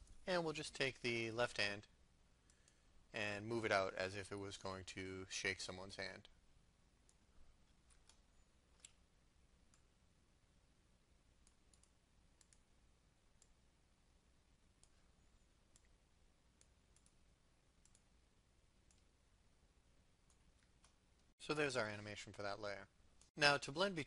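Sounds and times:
computer mouse clicks: 11.4 - 12.6, 16.6 - 17.2, 17.8 - 18.0.

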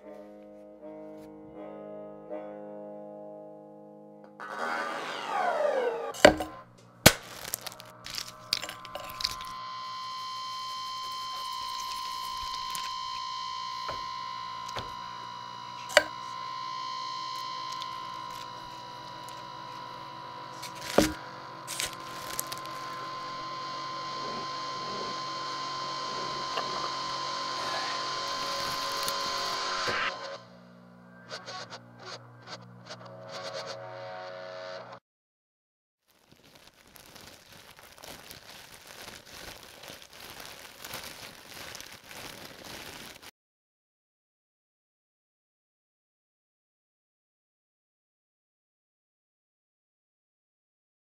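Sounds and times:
electrical hum with high whine: 4.8 - 35.0
fire crackling: 6.2 - 29.8, 36.1 - 43.3.

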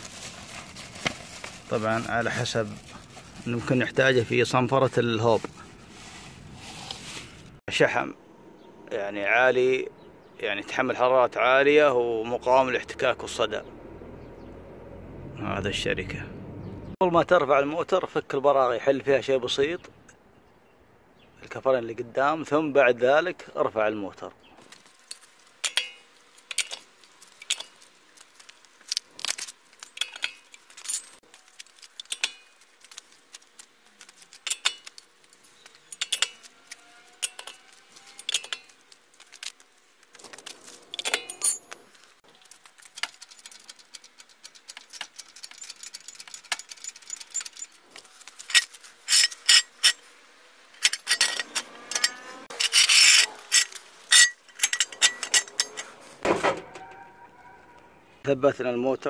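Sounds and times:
metallic rattling and scraping: 24.6 - 56.8.

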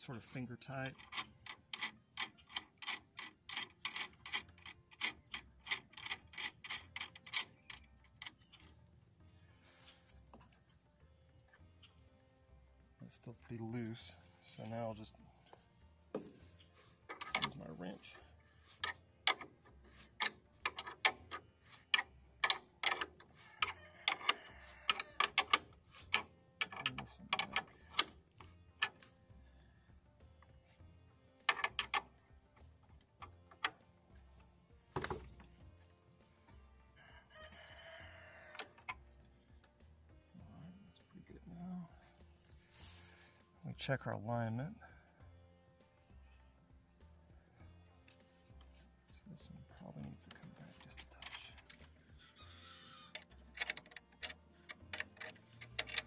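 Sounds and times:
nut spinning on threaded rod: 18.7 - 29.0, 50.9 - 56.0.

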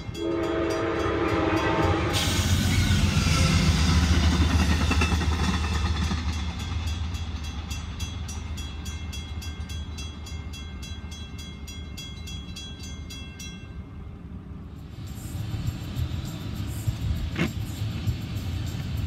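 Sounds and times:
railroad crossing bell ringing: 0.0 - 14.4
passing train rumble: 0.0 - 19.0.

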